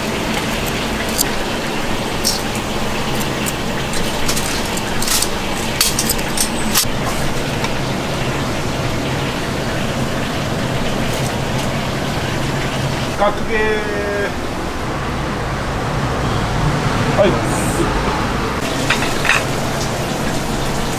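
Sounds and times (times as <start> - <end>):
dishes and utensils clinking: 0.0 - 7.8, 18.6 - 20.5
kitchen rushing noise: 0.0 - 7.8, 18.6 - 20.4.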